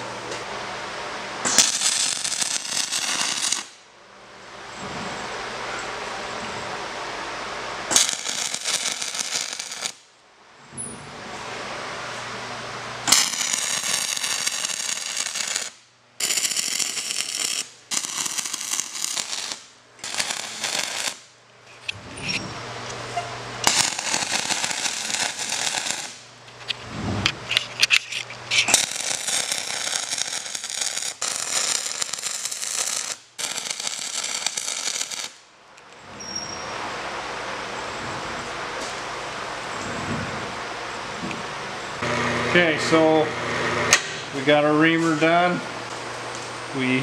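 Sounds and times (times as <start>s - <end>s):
welding arc crackling: 1.4s - 3.8s, 7.8s - 10.1s, 13.0s - 22.4s, 23.6s - 35.4s.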